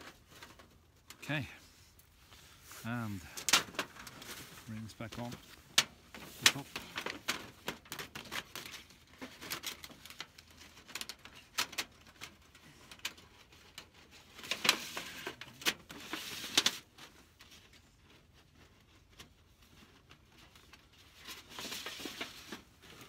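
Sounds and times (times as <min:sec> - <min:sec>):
thin metal sheet crinkling: 0:00.0 - 0:01.3, 0:02.5 - 0:23.0.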